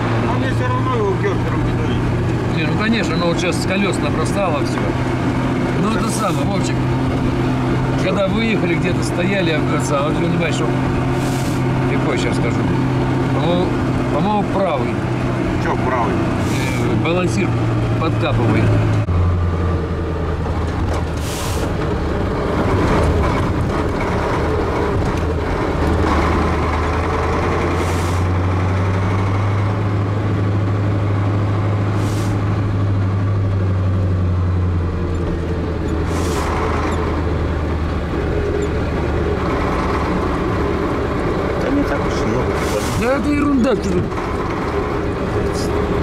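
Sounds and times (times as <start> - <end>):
truck engine running: 0.0 - 46.0
air brake hisses: 11.2 - 11.6, 16.4 - 16.9, 21.2 - 21.7, 32.0 - 32.4.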